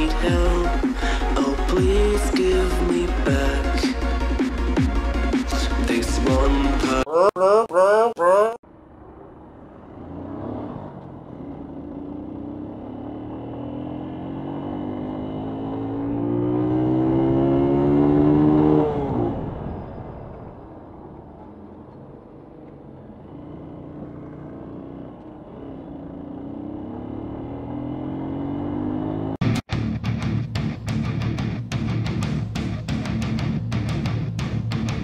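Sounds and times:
motorcycle engine accelerating: 8.7s - 35.0s.

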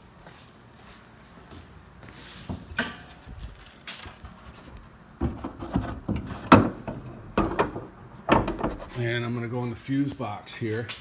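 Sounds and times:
metallic clunks and knocks: 5.2s - 9.0s.

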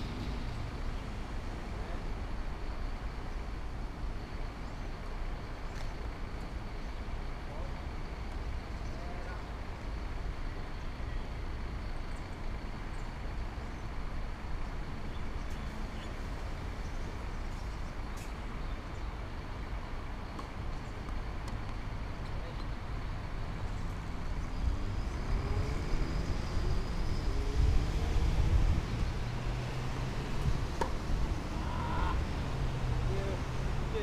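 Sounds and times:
road traffic rumble: 0.0s - 34.0s
vehicle accelerating past: 24.0s - 34.0s.

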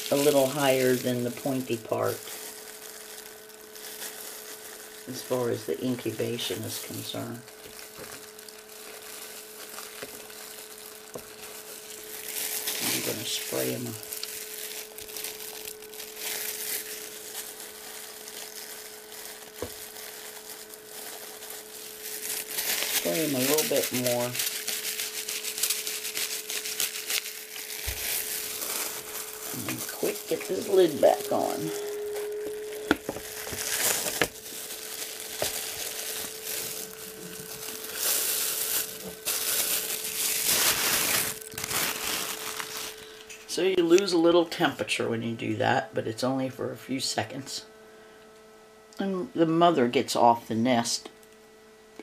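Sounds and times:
plastic glove crinkling: 0.0s - 44.6s
faint steady hum: 0.0s - 52.0s.

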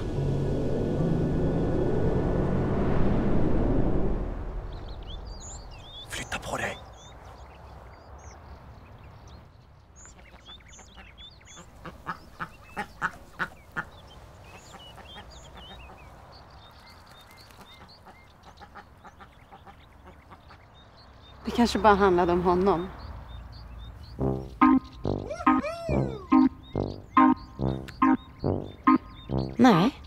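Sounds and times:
duck quacking: 24.2s - 29.6s
faint high chirps: 24.2s - 29.6s.

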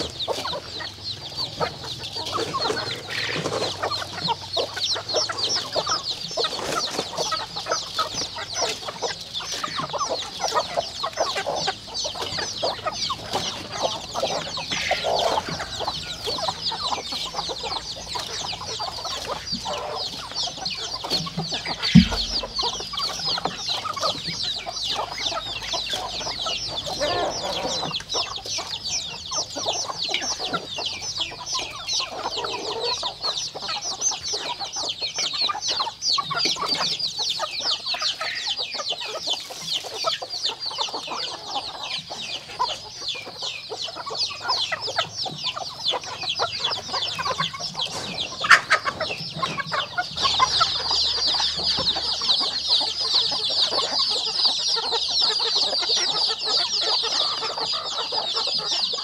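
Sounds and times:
chickens clucking: 0.0s - 59.0s
dense high chirping: 12.0s - 27.7s
sharp knock: 21.9s - 22.8s.

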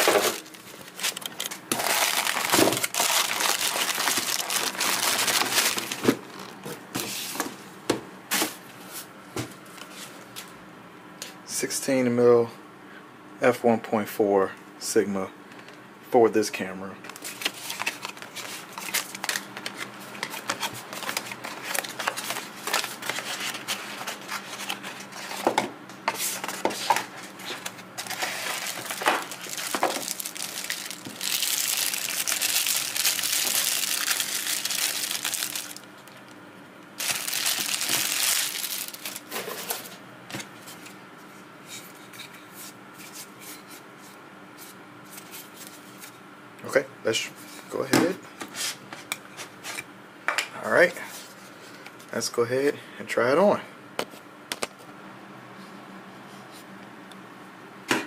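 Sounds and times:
packaging rustling and crinkling: 0.0s - 6.7s, 17.2s - 25.5s, 26.3s - 36.4s, 37.0s - 39.9s.

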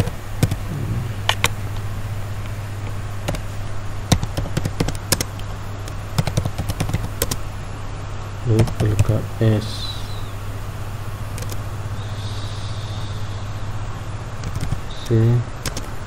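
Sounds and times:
steady low hum: 0.0s - 16.0s
keyboard keys clicking: 4.1s - 5.3s, 15.6s - 15.9s.

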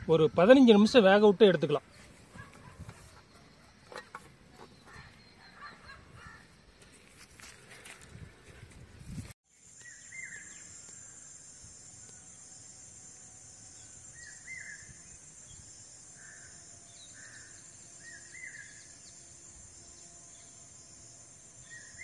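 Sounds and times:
soft bird calls: 1.8s - 7.0s
high-pitched insect drone: 9.5s - 22.0s.

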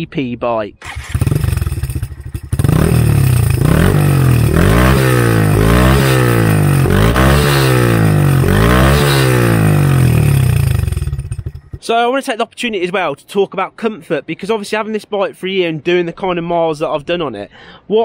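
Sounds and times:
motorcycle engine revving: 0.8s - 11.8s.

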